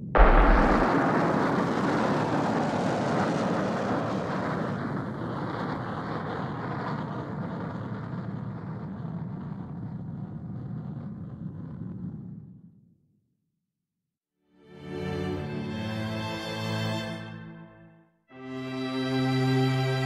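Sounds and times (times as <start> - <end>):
rocket engine rumble: 0.0 - 12.6.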